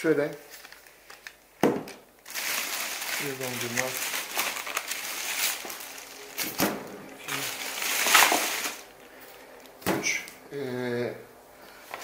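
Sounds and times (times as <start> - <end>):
plastic bags rustling: 2.2 - 10.3.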